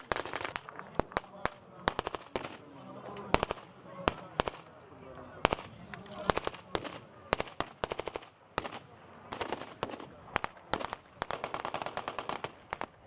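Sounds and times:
blank gunshots and bursts: 0:05.4 - 0:13.0.

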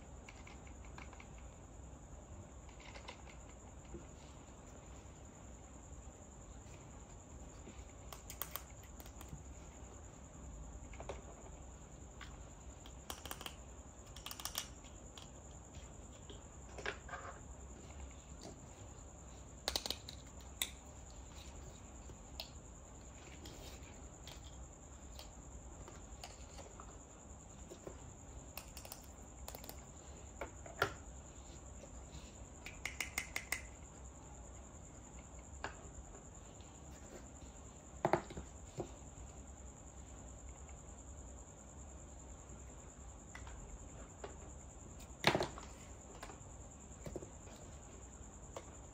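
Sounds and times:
plastic toy pieces clicking: 0:13.0 - 0:15.3.

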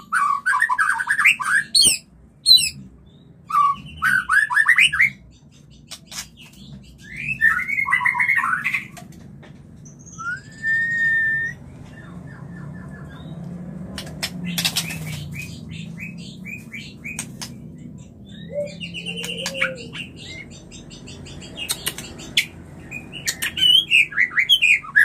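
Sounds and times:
bird long rising whistle: 0:10.2 - 0:11.6
bird ticking notes: 0:12.9 - 0:23.9
bird chattering calls: 0:14.0 - 0:25.0.

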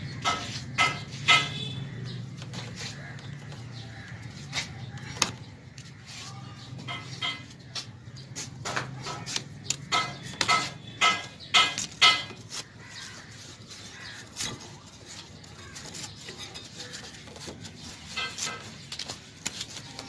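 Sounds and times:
crow cawing: 0:12.7 - 0:14.3.

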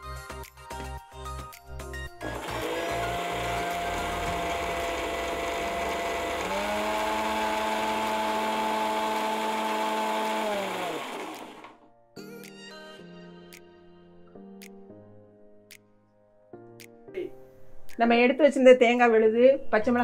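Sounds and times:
mixer grinder motor whine: 0:02.2 - 0:11.8.

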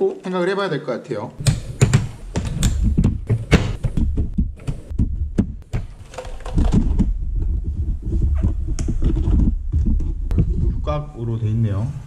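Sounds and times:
keyboard thumping when handled: 0:01.4 - 0:07.2.

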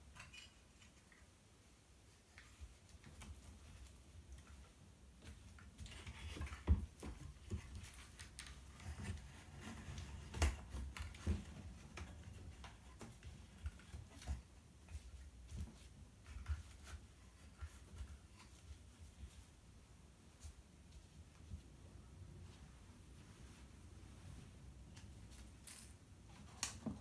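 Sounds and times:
fabric rustling: 0:11.4 - 0:26.5.

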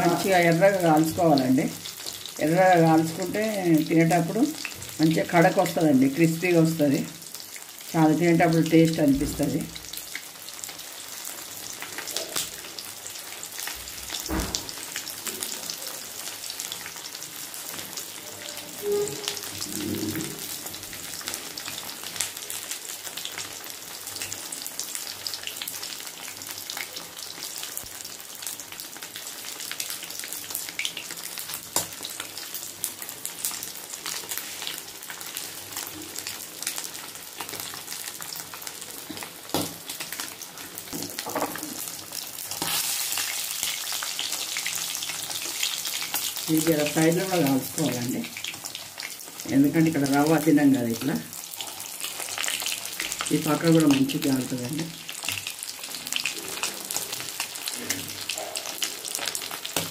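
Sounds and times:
fish frying in hot oil: 0:00.0 - 0:59.9.

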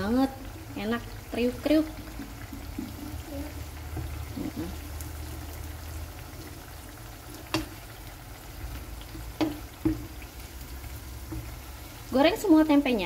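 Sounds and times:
food frying in hot oil: 0:00.0 - 0:13.0
wooden spatula knocking on pan: 0:02.1 - 0:04.4, 0:07.5 - 0:07.8, 0:09.1 - 0:10.3, 0:11.1 - 0:11.7.

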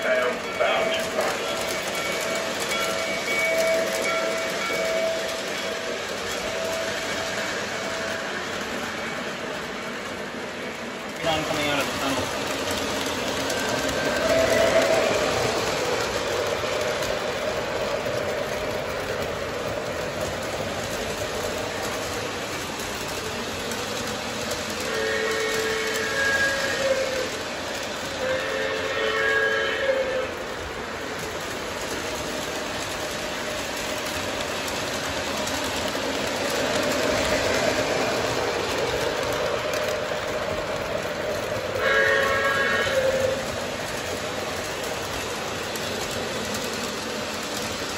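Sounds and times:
faint rail clicks: 0:00.0 - 0:47.9
model train running on track: 0:00.0 - 0:47.9.

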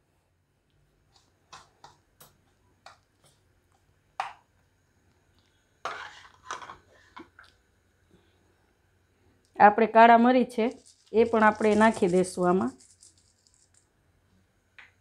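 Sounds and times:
metal spoon scraping spice mix in bowl: 0:05.9 - 0:06.8, 0:10.6 - 0:13.8.

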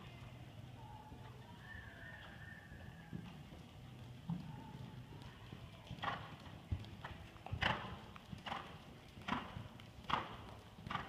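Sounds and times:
hoofbeats on soft sand: 0:02.1 - 0:11.0.

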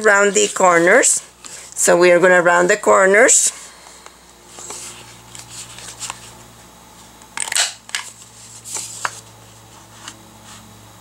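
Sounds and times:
paper handling: 0:04.5 - 0:06.4, 0:07.6 - 0:10.6.

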